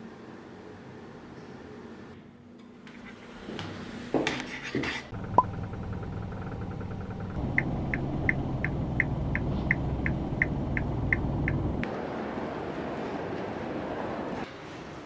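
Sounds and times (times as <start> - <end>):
car engine and road rumble: 5.1 - 12.0.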